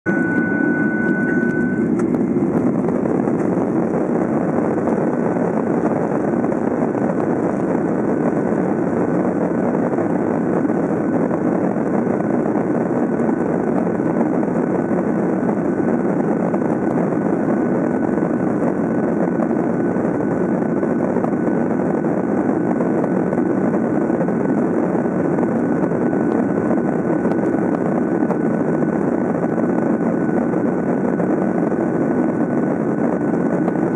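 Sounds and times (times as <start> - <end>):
jet engine and airflow in cabin: 0.0 - 33.9
thin high whine: 0.1 - 11.2.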